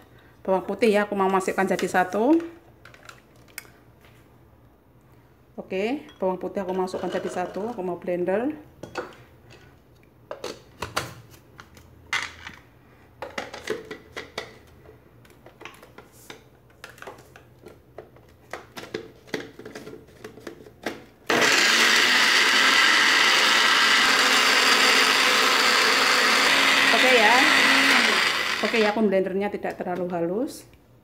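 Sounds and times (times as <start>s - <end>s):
blender motor chopping: 21.3s - 29.0s.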